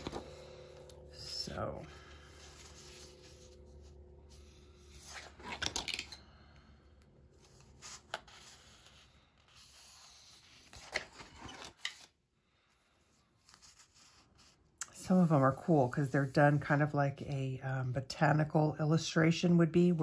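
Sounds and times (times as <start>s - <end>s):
paper pages rustling: 0.0s - 0.7s, 2.2s - 6.1s, 7.4s - 12.1s.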